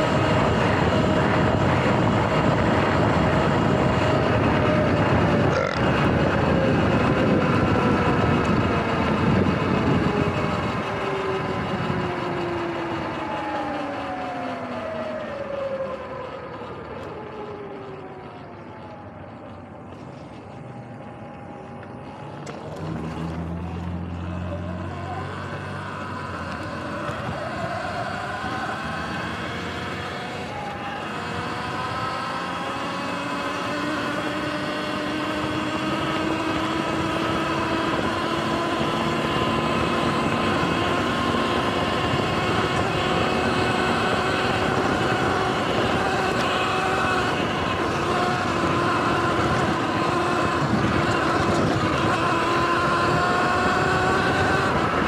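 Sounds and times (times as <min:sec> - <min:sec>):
wind noise: 0:00.0 - 0:13.4, 0:26.6 - 0:55.0
electric motor whining: 0:20.7 - 0:55.0.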